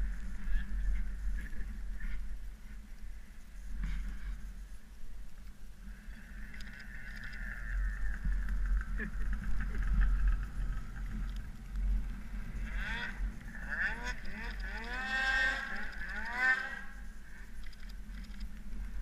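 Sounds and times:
snowmobile engine idling: 0:06.0 - 0:17.6
snowmobile engine revving: 0:12.1 - 0:17.0.

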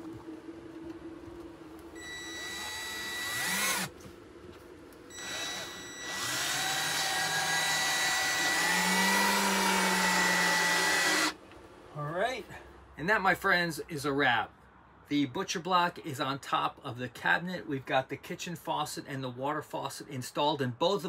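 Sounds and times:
cordless drill whining: 0:02.0 - 0:03.9, 0:05.1 - 0:11.4.

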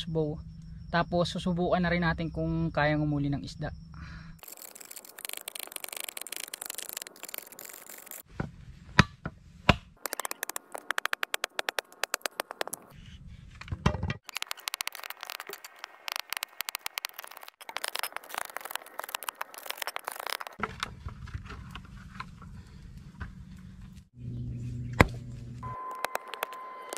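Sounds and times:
machete scraping bamboo: 0:04.4 - 0:08.3, 0:14.2 - 0:22.2
machete knocking bamboo: 0:09.0 - 0:10.4.

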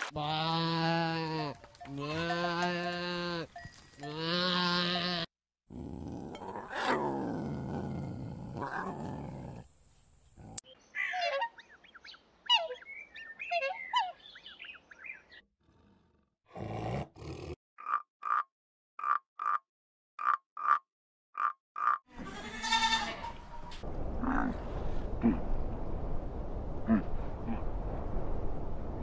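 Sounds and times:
young goat bleating: 0:00.2 - 0:05.3, 0:22.1 - 0:23.5
lioness roaring: 0:05.7 - 0:09.7.

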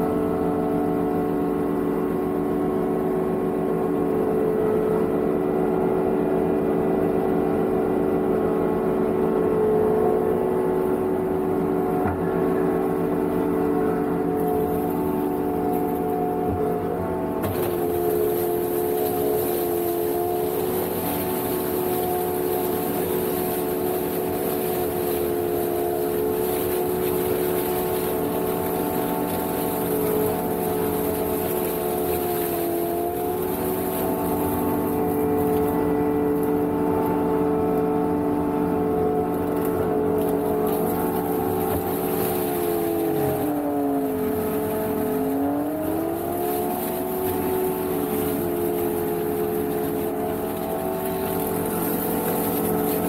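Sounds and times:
mower engine running: 0:00.0 - 0:53.0
flail mulcher cutting reeds: 0:14.4 - 0:37.2, 0:39.3 - 0:53.0.

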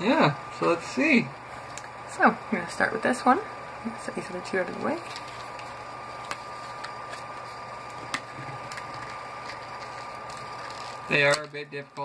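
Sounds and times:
faint high hum: 0:00.0 - 0:12.0
plastic packaging clicks and crinkles: 0:05.0 - 0:11.6.

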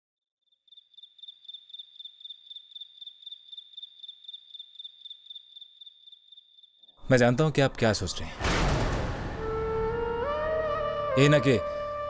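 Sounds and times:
cricket chirping: 0:00.4 - 0:07.0.

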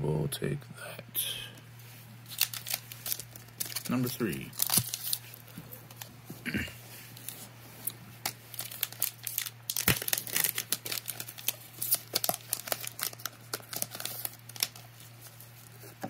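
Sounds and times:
foil wrapper crinkling: 0:02.2 - 0:06.1, 0:07.1 - 0:15.9.

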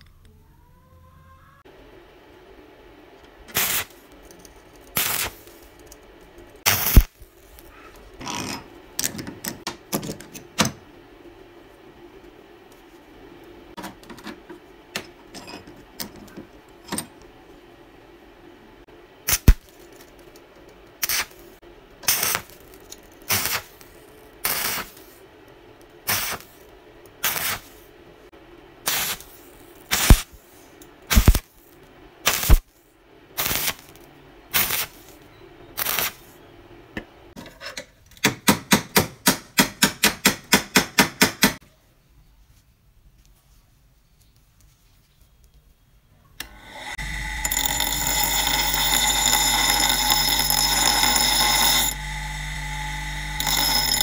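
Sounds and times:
welding arc crackling: 0:03.5 - 0:04.1, 0:04.9 - 0:05.8, 0:06.6 - 0:07.7, 0:19.3 - 0:19.8, 0:21.0 - 0:25.1, 0:26.1 - 0:26.6, 0:27.2 - 0:27.8, 0:28.9 - 0:30.4, 0:31.1 - 0:31.6, 0:32.2 - 0:32.7, 0:33.4 - 0:35.2, 0:35.8 - 0:36.3, 0:46.6 - 0:54.0
steady hum: 0:46.4 - 0:54.0.

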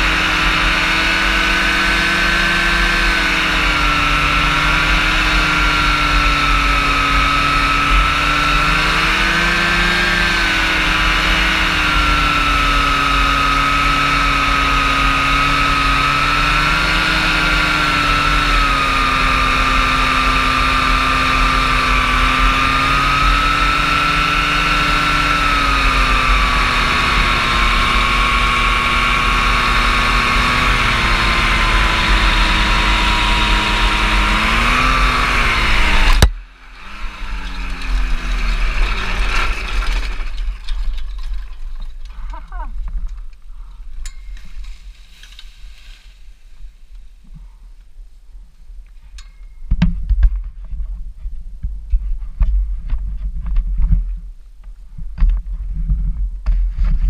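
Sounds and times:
aircraft engine and propeller: 0:00.0 - 0:40.2.

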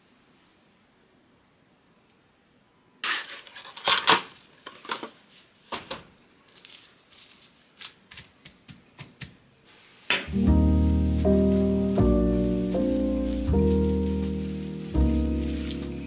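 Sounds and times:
cling film crinkling: 0:03.0 - 0:05.4, 0:06.5 - 0:08.5, 0:09.7 - 0:16.0.

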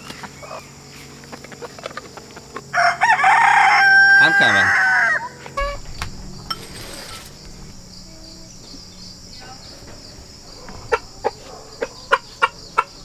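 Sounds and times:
high insect drone: 0:00.0 - 0:13.0
rooster clucking: 0:00.2 - 0:05.9, 0:09.2 - 0:13.0.

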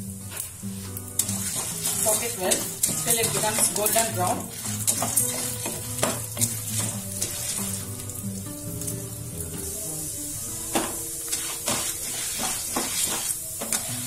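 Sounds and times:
background music: 0:00.0 - 0:14.0
lentils sizzling in hot oil: 0:00.0 - 0:14.0
wooden spatula scraping: 0:00.2 - 0:08.1, 0:11.3 - 0:14.0.

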